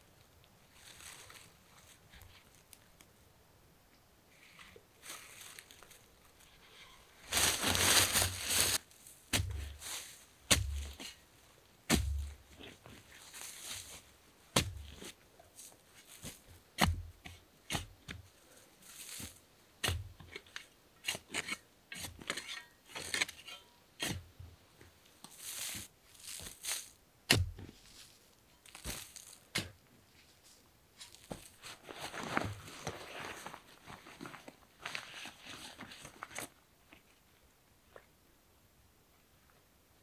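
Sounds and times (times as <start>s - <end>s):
rustling: 0.7s - 3.0s, 4.4s - 11.2s, 11.9s - 16.6s, 18.3s - 19.4s, 25.2s - 37.2s
shovel striking soil: 9.3s - 9.8s, 10.5s - 11.2s, 11.9s - 12.5s, 14.6s - 15.1s, 16.2s - 18.2s, 19.1s - 24.2s, 25.2s - 27.8s, 28.7s - 29.8s
earth and roots tearing: 25.4s - 27.0s, 28.6s - 29.4s.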